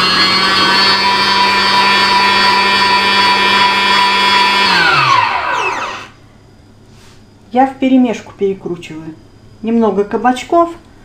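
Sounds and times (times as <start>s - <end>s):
electric meat grinder running: 0.0s - 6.2s.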